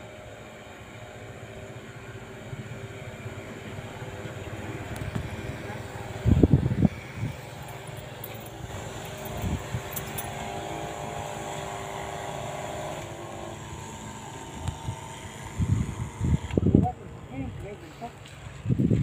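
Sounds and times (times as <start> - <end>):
small motor humming: 0.0 - 19.0.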